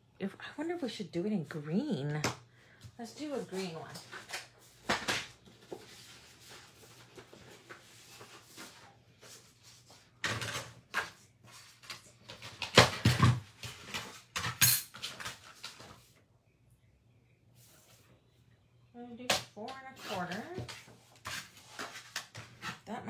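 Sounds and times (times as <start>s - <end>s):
paper rustling: 3.5s - 16.2s.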